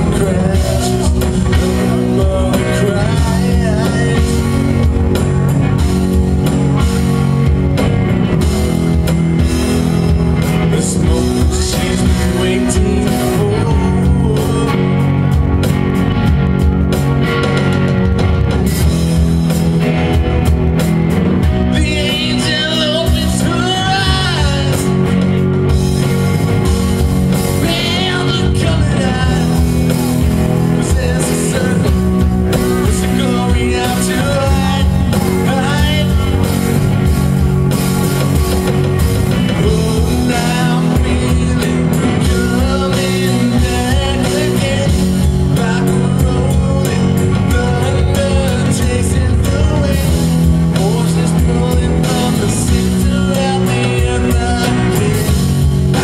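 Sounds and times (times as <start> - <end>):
man singing: 0.0 - 6.2, 9.4 - 15.7, 21.4 - 25.8, 27.3 - 37.2, 39.4 - 56.0
rock band playing: 0.0 - 56.0.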